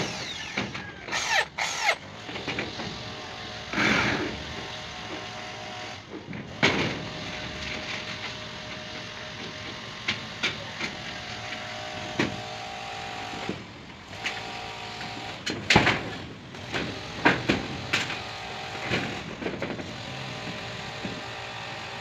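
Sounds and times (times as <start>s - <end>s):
cordless drill motor whine: 0.0s - 2.1s.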